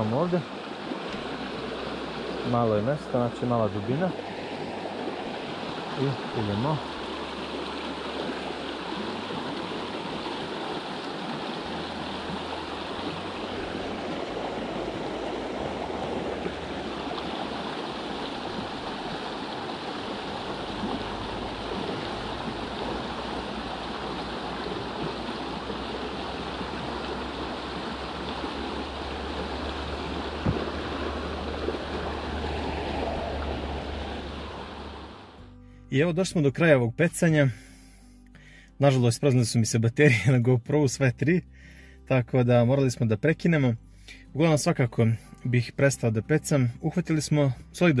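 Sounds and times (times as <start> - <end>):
river water rushing: 0.0 - 35.5.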